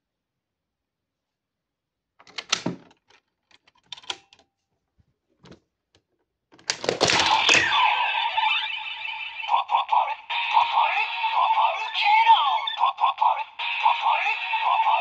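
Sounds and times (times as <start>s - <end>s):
plastic clicks and knocks: 6.5s - 7.6s
toy electronic sound effect: 7.1s - 15.0s.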